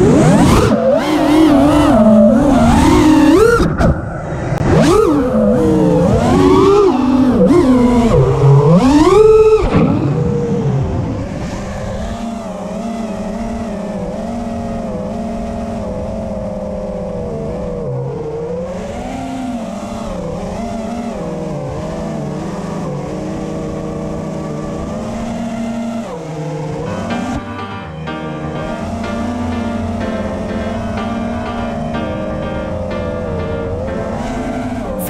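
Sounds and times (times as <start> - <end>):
quadcopter motors whining: 0.0 - 27.4.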